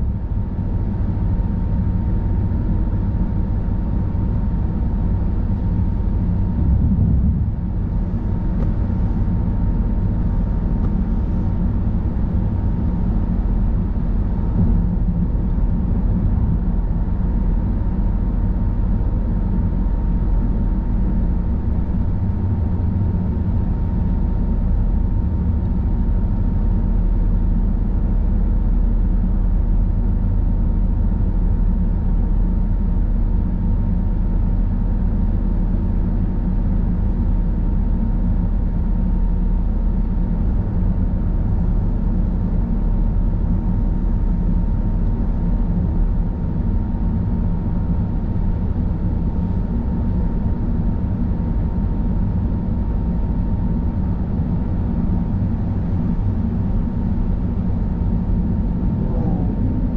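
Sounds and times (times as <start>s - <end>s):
car tyres and engine rumble: 0.0s - 31.1s, 54.3s - 59.9s
faint high whine: 57.2s - 59.9s.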